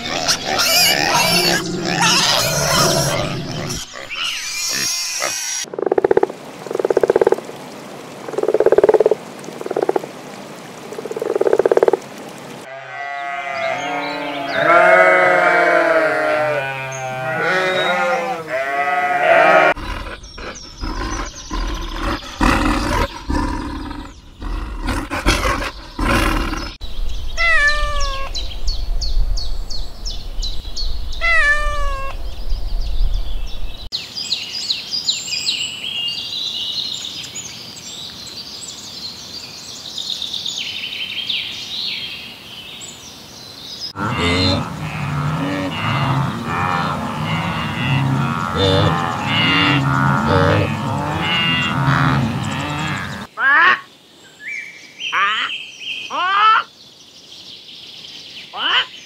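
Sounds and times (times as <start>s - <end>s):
pigs: 0.0s - 5.7s, 18.9s - 26.8s, 44.0s - 53.3s
sheep bleating: 12.7s - 19.8s, 44.0s - 53.2s
cat meowing: 27.4s - 28.3s, 31.2s - 32.1s.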